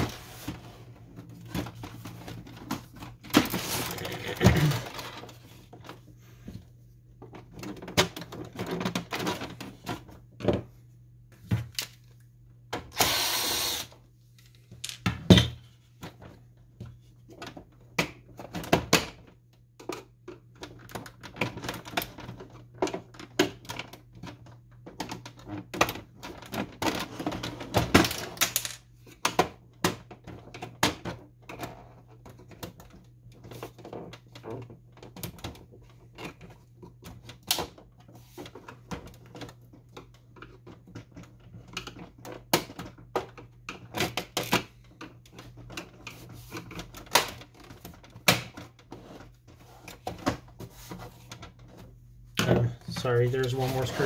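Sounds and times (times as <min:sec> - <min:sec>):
rough plastic scrape: 0:53.0 - 0:54.0.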